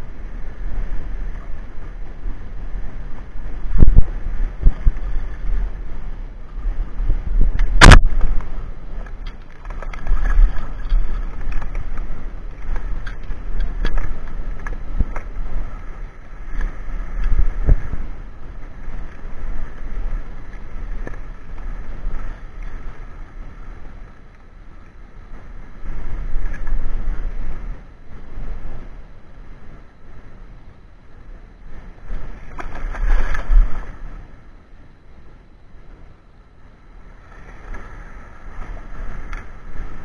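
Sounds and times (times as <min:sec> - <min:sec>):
wind buffeting microphone: 0:00.0 - 0:40.0
shallow sea water washing: 0:08.0 - 0:23.7.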